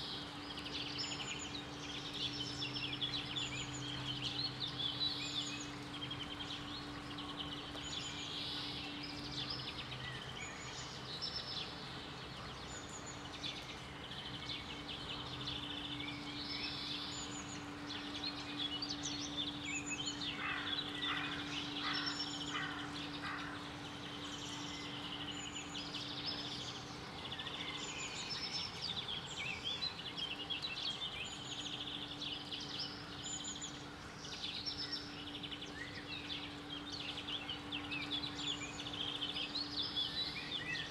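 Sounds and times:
birds chirping and singing: 0.0 - 40.9.

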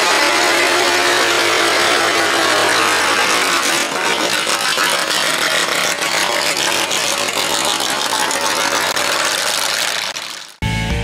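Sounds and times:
loud car engine driving past: 0.0 - 7.4
rattly exhaust: 0.0 - 10.6.

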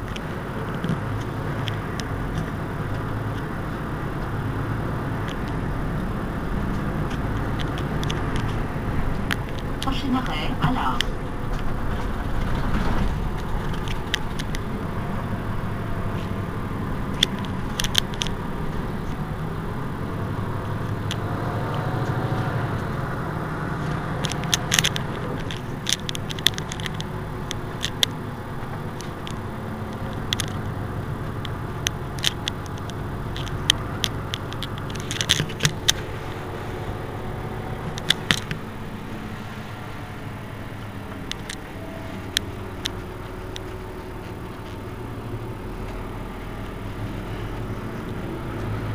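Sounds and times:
bus engine idling: 0.0 - 48.9
sharp clicks: 5.2 - 14.9, 17.0 - 19.2, 23.8 - 48.9.

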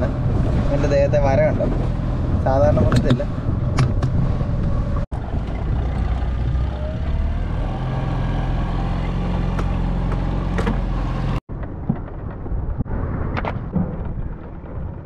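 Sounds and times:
outboard motor running: 0.0 - 11.4
water noise: 0.0 - 11.9
wind: 0.0 - 15.0.

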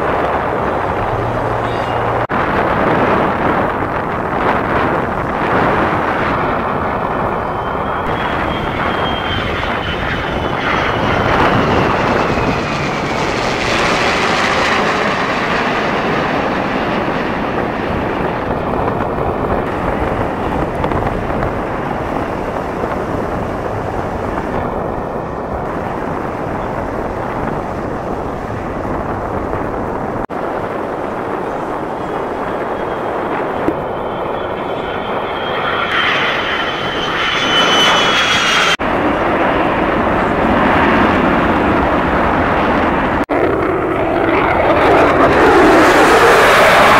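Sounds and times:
jet roar: 0.0 - 46.9
thin engine whine dropping in pitch: 5.7 - 16.0, 31.4 - 38.8.

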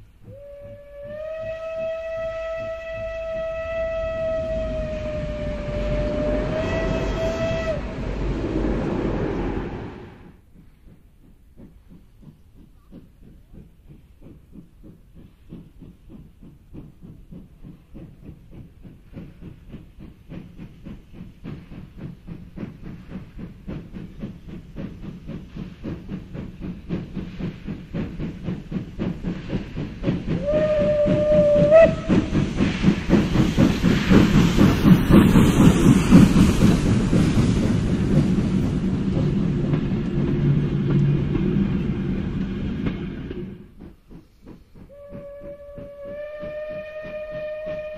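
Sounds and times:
steam locomotive exhaust beats: 0.0 - 47.9
train carriages rolling by: 0.0 - 47.9
steam locomotive whistle: 0.2 - 8.3, 30.4 - 32.4, 44.9 - 47.9.

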